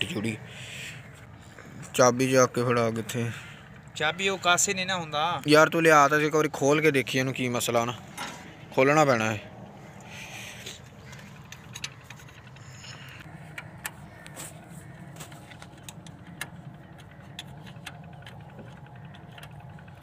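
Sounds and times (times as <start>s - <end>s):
steady low hum: 0.0s - 20.0s
spanner clicking and tapping on metal: 11.1s - 14.0s, 15.2s - 20.0s.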